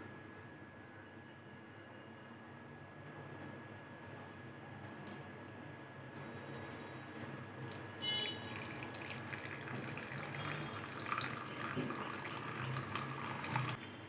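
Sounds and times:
liquid trickling into metal vessel: 6.1s - 13.8s.

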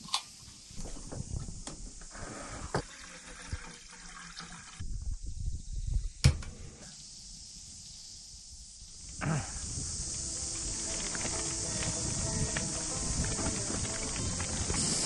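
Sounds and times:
water pouring into metal pot: 2.8s - 4.8s.

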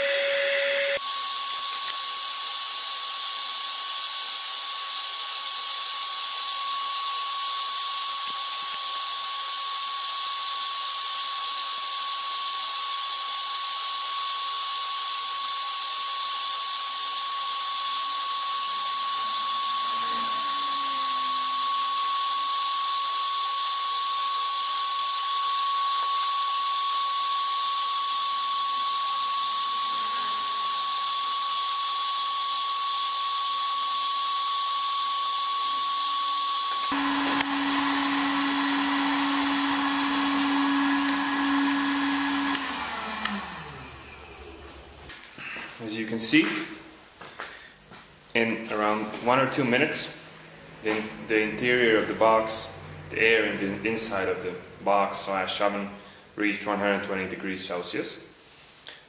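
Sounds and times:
heat gun whining and hissing: 0.0s - 45.6s.

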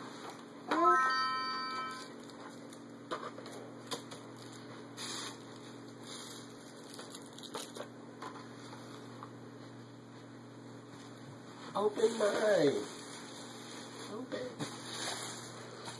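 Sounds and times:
crinkling: 2.0s - 8.5s
gift bags rustling: 4.0s - 7.9s, 11.8s - 15.9s.

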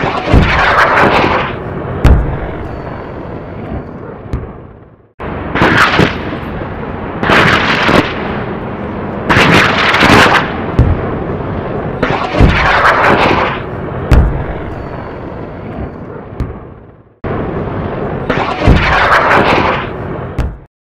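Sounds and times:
firework bursts: 0.0s - 4.5s, 5.5s - 6.4s, 7.2s - 8.4s, 9.3s - 11.1s
sharp bangs: 0.0s - 20.7s.

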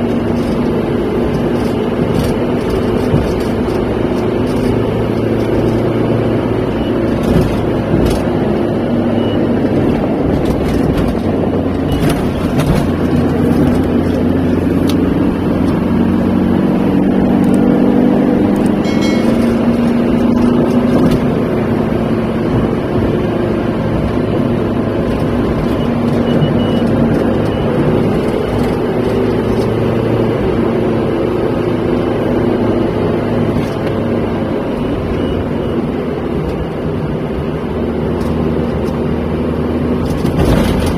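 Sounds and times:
vehicle engine and tyre rumble: 0.0s - 40.9s.

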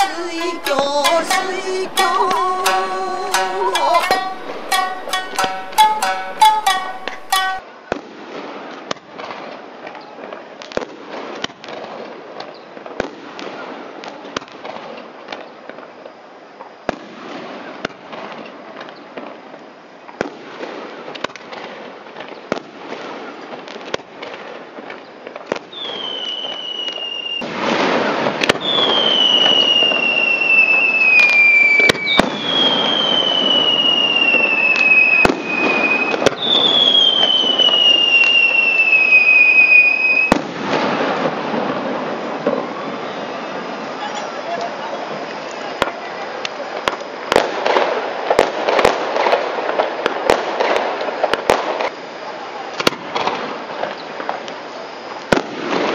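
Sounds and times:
fireworks bangs and crackles: 7.6s - 55.9s
long firework whistles: 24.2s - 55.9s.

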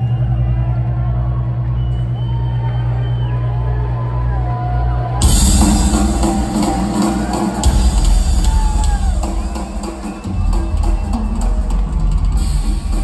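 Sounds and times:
heavy drumming and cymbals: 5.2s - 13.0s
live rock band: 5.2s - 13.0s.

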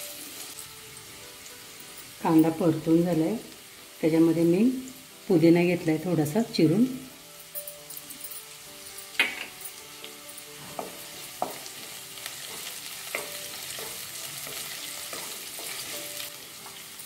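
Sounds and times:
onions sizzling in hot oil: 0.0s - 17.0s
wooden spatula knocking pan: 10.7s - 11.7s.

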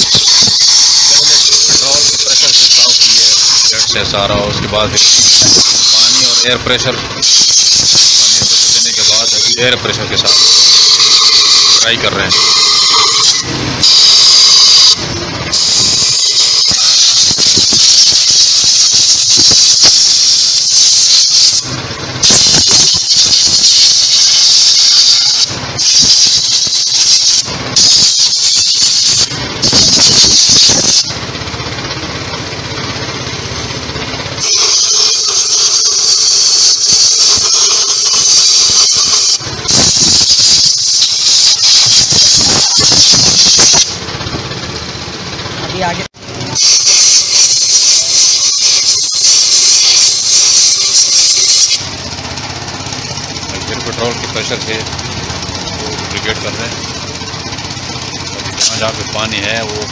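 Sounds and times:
compressed air hissing: 5.0s - 6.5s, 7.2s - 9.6s, 10.3s - 31.2s, 34.4s - 44.0s, 46.6s - 52.0s.

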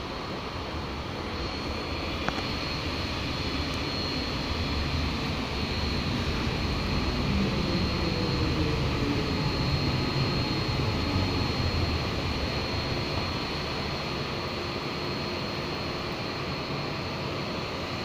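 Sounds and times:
train rumble: 0.0s - 14.4s
faint falling whine: 0.0s - 18.0s.

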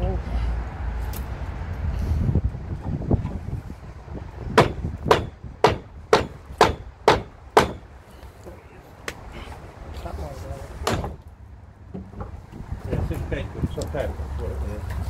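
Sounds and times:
hammer striking steel frame: 4.6s - 8.0s, 10.8s - 11.2s.

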